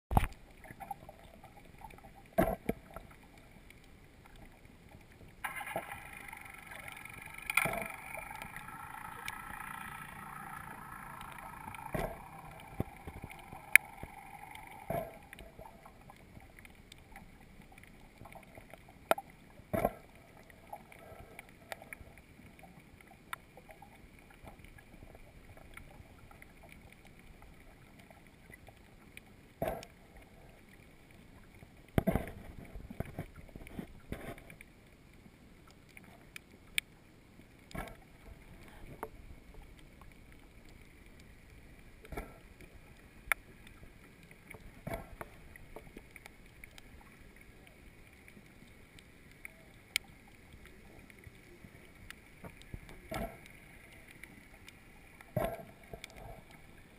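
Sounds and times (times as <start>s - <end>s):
underwater knocks and clicks: 0.1s - 22.2s, 23.3s - 30.3s, 31.8s - 34.7s, 37.7s - 41.3s, 42.0s - 56.9s
underwater hiss: 5.6s - 16.0s.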